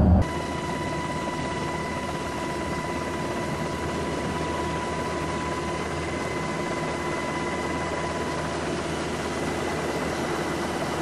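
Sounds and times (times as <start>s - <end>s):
high whine: 0.0s - 0.6s
helicopter engine and rotor: 0.0s - 11.0s.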